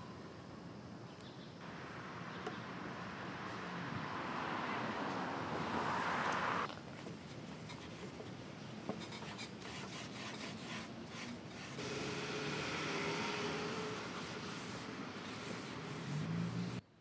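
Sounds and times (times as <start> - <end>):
smooth wiping: 13.8 - 16.8
steel wool scrubbing wood: 13.8 - 16.8.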